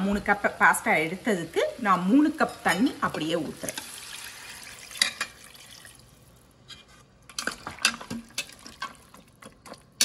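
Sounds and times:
water pouring and splashing into pot: 0:03.5 - 0:06.4, 0:07.3 - 0:10.0.

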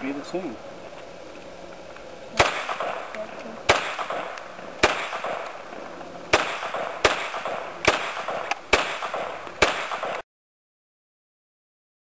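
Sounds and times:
pistol shots: 0:02.4 - 0:10.2.

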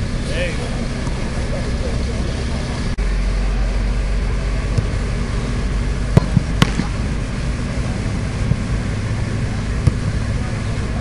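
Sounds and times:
low rumble: 0:00.0 - 0:11.0
balls kicked with sharp thumps: 0:01.0 - 0:01.2, 0:04.7 - 0:05.0, 0:06.1 - 0:07.1, 0:08.4 - 0:08.8, 0:09.8 - 0:10.2.

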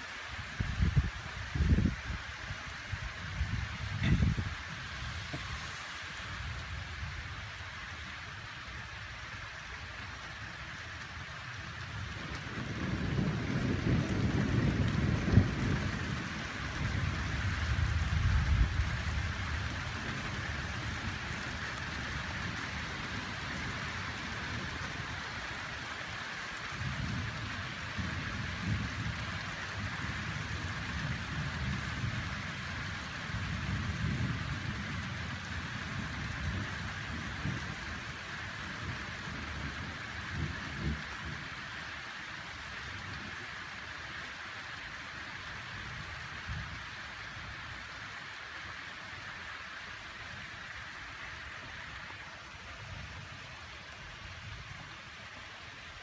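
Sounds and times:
rain hissing: 0:00.0 - 0:56.0
thunder rumbling: 0:11.3 - 0:41.6.

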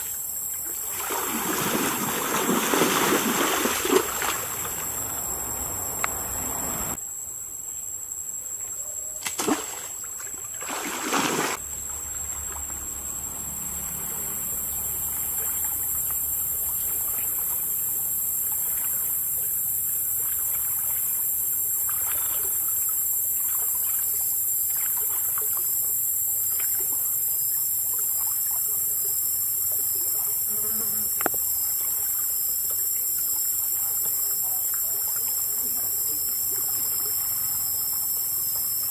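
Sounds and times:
high insect buzz: 0:00.0 - 0:07.0, 0:09.2 - 0:38.9
stream water trickling: 0:00.0 - 0:07.0, 0:09.7 - 0:38.9
water splashes: 0:00.0 - 0:07.0, 0:09.2 - 0:38.9.

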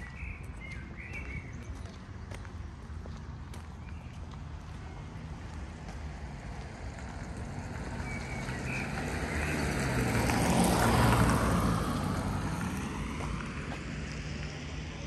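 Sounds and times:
vehicle driving past: 0:05.0 - 0:14.9.

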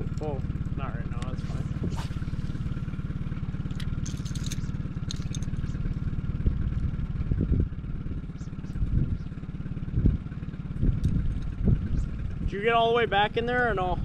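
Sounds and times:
outboard motor idling: 0:00.0 - 0:14.0
light clicks and clatter: 0:03.6 - 0:06.0.

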